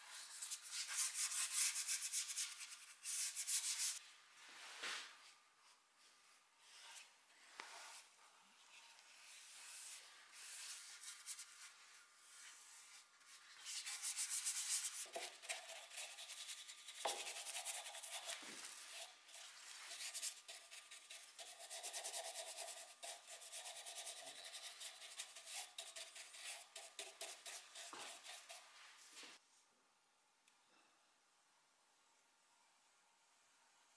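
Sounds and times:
paintbrush scratching on wood: 9.6 - 29.4.

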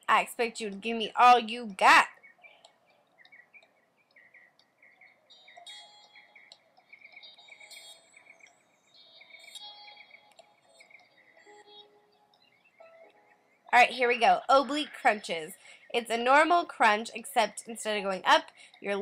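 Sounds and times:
high bird calls: 1.9 - 12.9.

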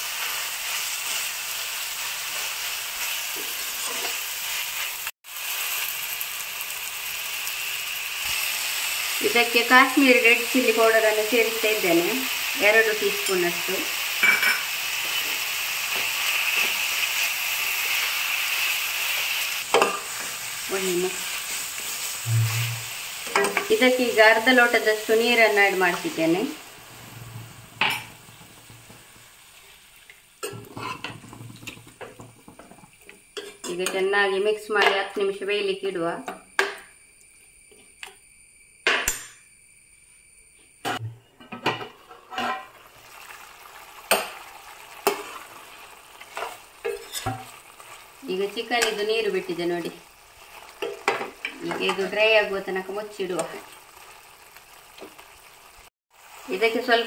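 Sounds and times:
chicken sizzling in a pan: 0.0 - 35.9, 41.6 - 57.0
short sharp sound: 22.2 - 22.9
spoon stirring in a pan: 46.2 - 48.0.

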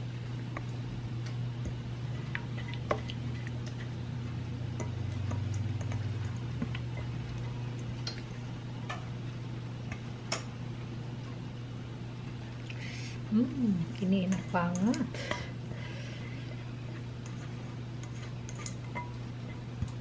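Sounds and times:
steady low hum: 0.0 - 20.0
spoon clicking and scraping on bowl: 17.2 - 20.0.

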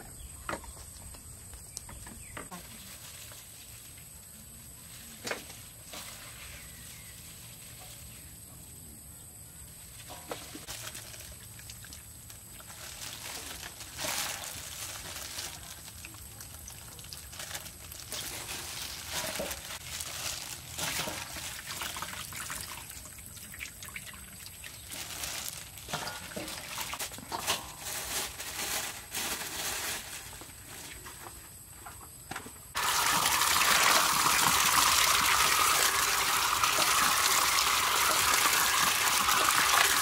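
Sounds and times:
wet squelching and crinkling: 9.9 - 31.1.

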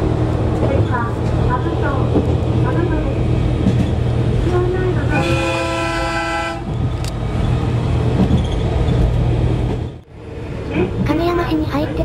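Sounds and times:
train rumbling on rails: 0.0 - 12.0
train horn: 5.1 - 6.7.

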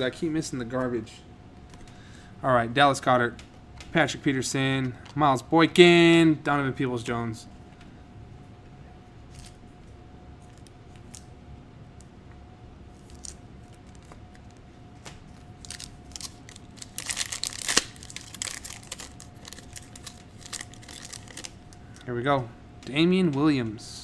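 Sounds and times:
foil card pack crinkling: 12.9 - 22.1.

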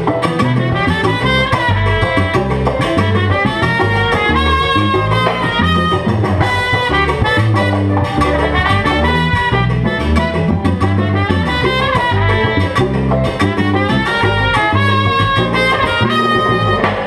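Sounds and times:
congas: 0.0 - 17.0
salsa band playing: 0.0 - 17.0
trumpet: 0.0 - 17.0.

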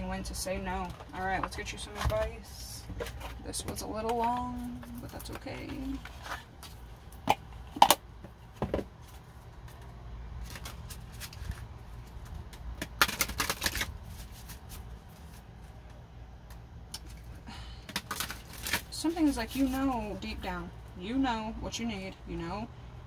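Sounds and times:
cards being shuffled: 9.0 - 20.0.

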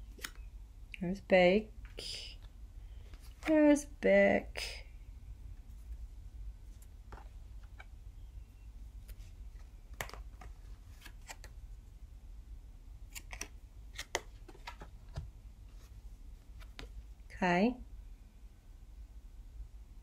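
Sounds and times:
low steady hum: 0.0 - 20.0
cards clicking and snapping: 0.1 - 0.5, 9.6 - 11.6, 13.1 - 15.2.

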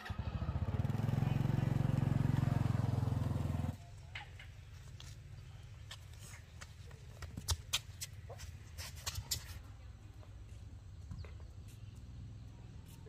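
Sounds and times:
child's shoes tapping on concrete: 5.8 - 9.6.

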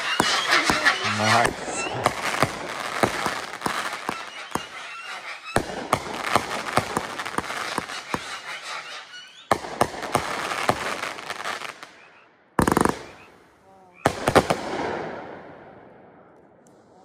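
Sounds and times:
firework launch and burst reports: 0.0 - 11.1
crackle of firework stars: 0.0 - 13.4.

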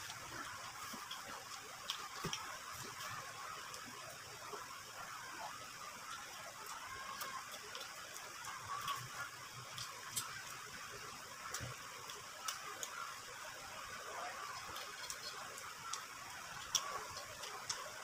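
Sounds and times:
person chewing: 0.0 - 3.2, 14.5 - 17.8
faint steady hiss: 0.0 - 18.0
lip smacks and mouth clicks: 7.4 - 10.5, 14.5 - 17.9.

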